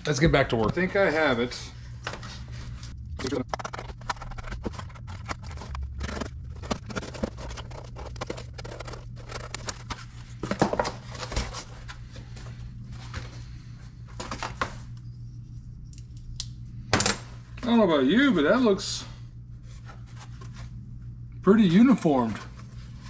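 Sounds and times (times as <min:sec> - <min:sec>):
low steady hum: 0:00.0 - 0:23.0
cardboard being folded and handled: 0:01.9 - 0:14.9, 0:19.6 - 0:20.8.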